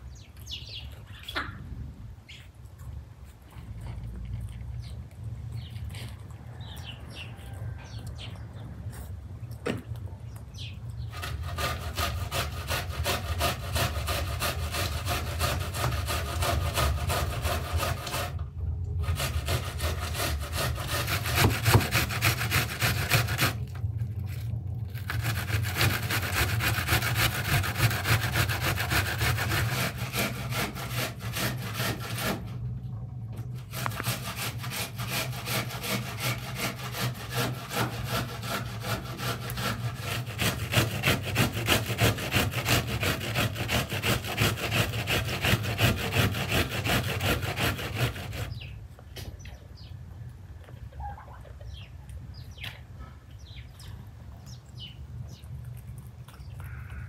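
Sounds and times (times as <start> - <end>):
onion grated on box grater: 11.2 - 18.4, 19.0 - 32.4, 33.7 - 48.6.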